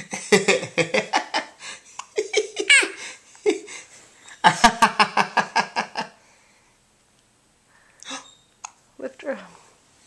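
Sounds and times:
laughter and giggling: 0.0 - 3.8, 4.4 - 6.2
baby giggling: 2.0 - 3.8.

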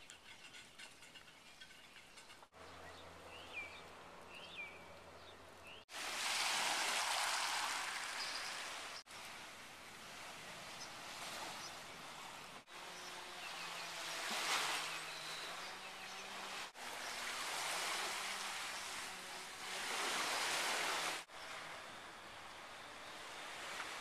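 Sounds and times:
small waves washing in: 5.9 - 24.0.

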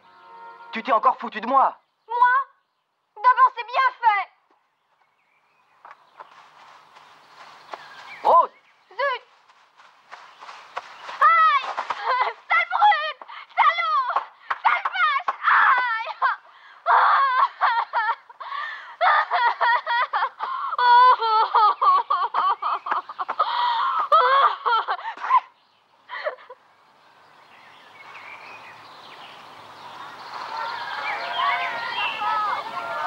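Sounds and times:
faint outdoor hiss: 0.0 - 33.0
girl laughing: 11.2 - 13.2, 15.8 - 25.5, 26.1 - 26.6.

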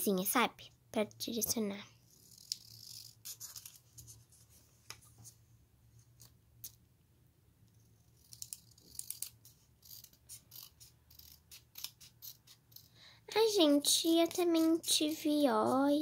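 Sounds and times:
scissors snipping paper: 8.2 - 13.0.

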